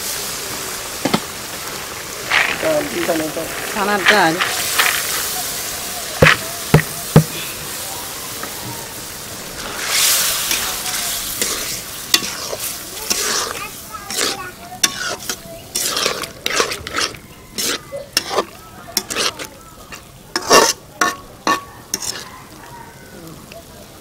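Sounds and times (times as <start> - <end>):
pan sizzling: 0.0 - 23.0
metal spatula scraping pan: 2.3 - 5.3, 9.6 - 22.3
sharp knocks: 6.2 - 7.4.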